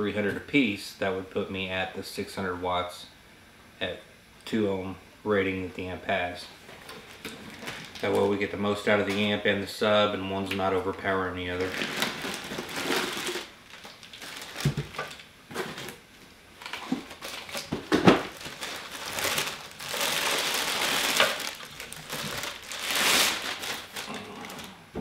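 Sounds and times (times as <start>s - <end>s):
plastic bag crinkling: 6.9s - 9.4s, 11.0s - 16.0s, 16.6s - 24.8s.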